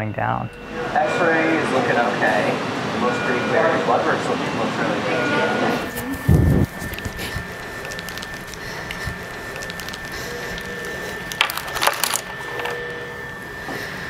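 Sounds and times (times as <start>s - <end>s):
high-pitched whine: 0.0s - 14.0s
crackling clatter: 6.0s - 13.0s.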